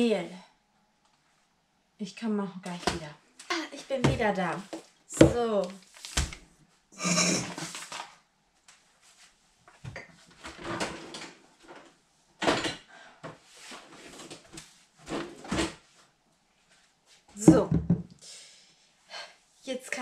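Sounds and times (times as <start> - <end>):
cartons knocking on counter: 4.0 - 4.3, 5.2 - 5.4.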